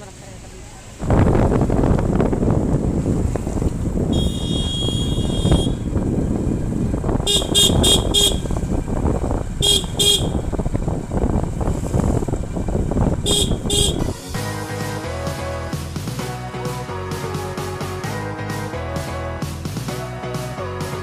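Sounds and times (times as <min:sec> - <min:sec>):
scooter engine and road noise: 0:00.0 - 0:21.0
horn beeping: 0:04.1 - 0:06.0, 0:07.2 - 0:08.7, 0:09.5 - 0:10.8, 0:13.1 - 0:14.4
music: 0:13.8 - 0:21.0.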